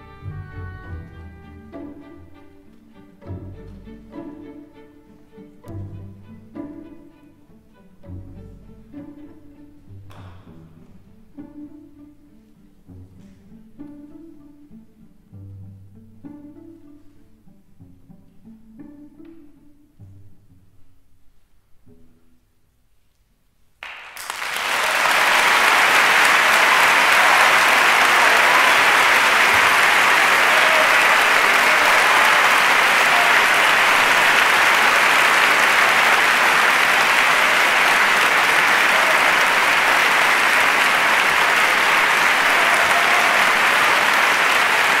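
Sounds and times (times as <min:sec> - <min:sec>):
audience applauding: 0:23.8 - 0:45.0.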